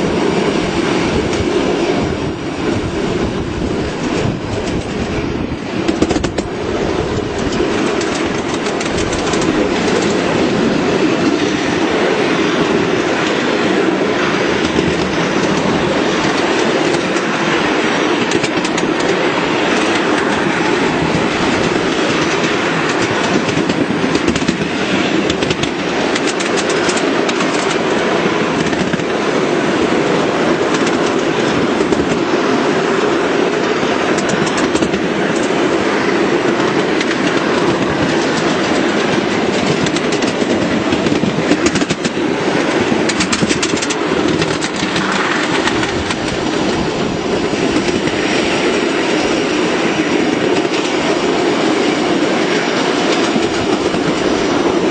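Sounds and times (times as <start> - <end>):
small train wheels rumbling on rails: 0.0 - 54.9
track clicks: 7.2 - 10.3, 36.6 - 46.8.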